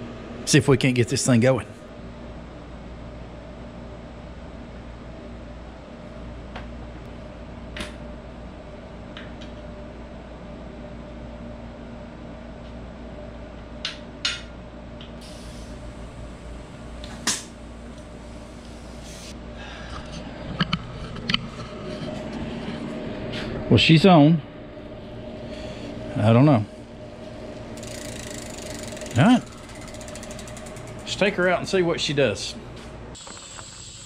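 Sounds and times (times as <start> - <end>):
air conditioner hum: 0.0 - 34.0
bicycle wheel clicks and knocks: 27.8 - 31.3.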